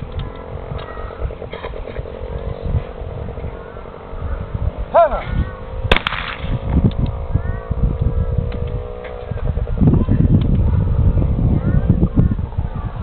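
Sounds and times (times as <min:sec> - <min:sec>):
steady hum: 0:00.0 - 0:13.0
person calling out: 0:04.9 - 0:05.4
shotgun shot: 0:05.9 - 0:06.7.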